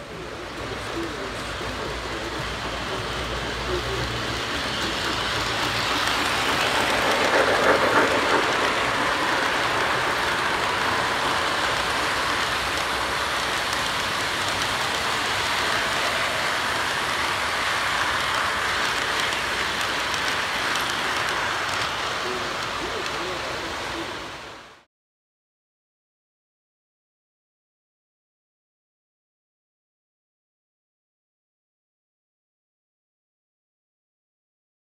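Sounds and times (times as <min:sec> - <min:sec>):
model train wheels rattling on rails: 0:00.0 - 0:24.4.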